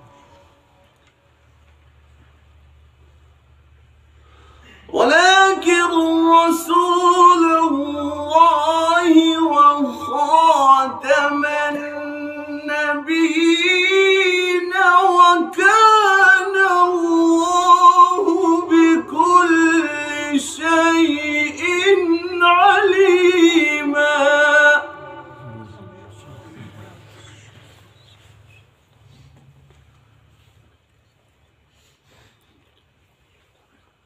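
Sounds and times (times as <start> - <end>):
man chanting melodic recitation: 4.9 - 27.9.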